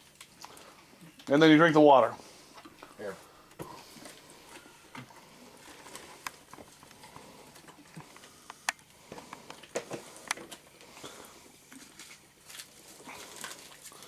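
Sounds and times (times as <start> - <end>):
chewing and swallowing: 2.5 - 14.0.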